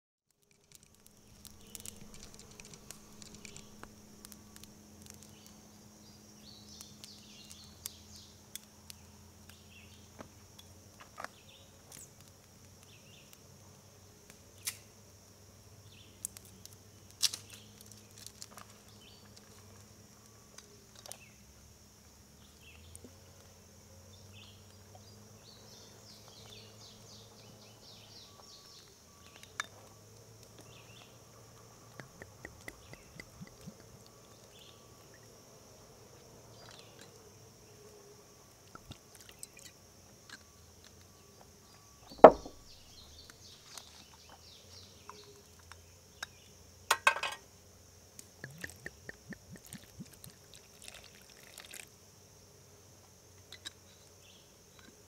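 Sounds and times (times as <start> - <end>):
insect chirps: 0.3 - 55.0
insects droning: 0.3 - 55.0
sharp clicks: 0.4 - 5.6.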